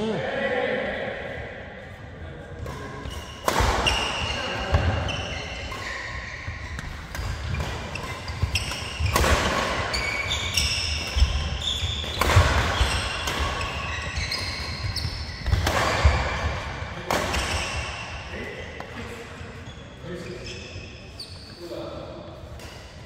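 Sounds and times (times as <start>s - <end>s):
rackets hitting shuttlecock: 2.6s - 18.0s
shoes squeaking on court: 2.8s - 16.5s, 19.6s - 21.7s.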